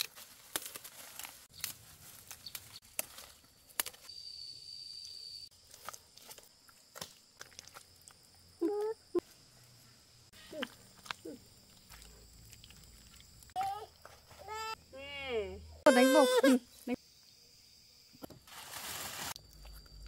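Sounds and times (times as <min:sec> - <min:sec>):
fern stems snapping: 0:00.0 - 0:04.1, 0:05.7 - 0:07.8
leaves rustling: 0:00.0 - 0:04.2, 0:18.4 - 0:19.6.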